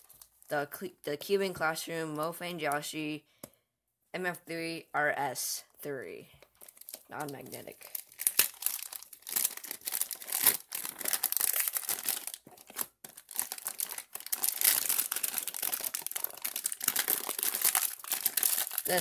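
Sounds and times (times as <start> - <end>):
plastic wrap crinkling: 0.0 - 0.5, 6.4 - 19.0.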